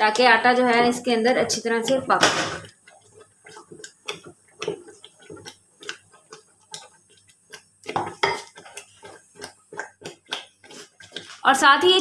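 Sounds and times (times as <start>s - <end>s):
wooden masher knocking metal pot: 0.2s - 2.8s.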